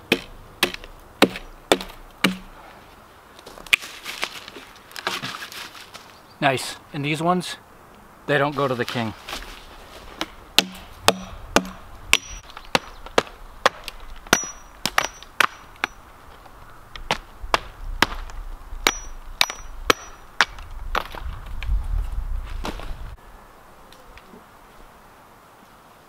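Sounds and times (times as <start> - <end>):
axe chopping into log: 0.1 - 2.5, 10.2 - 16.0, 17.1 - 21.3.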